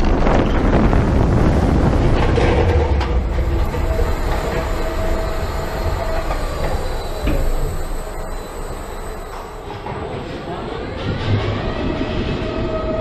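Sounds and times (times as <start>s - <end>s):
roller coaster wheels rumbling: 0.0s - 13.0s
thin whine: 1.8s - 11.2s.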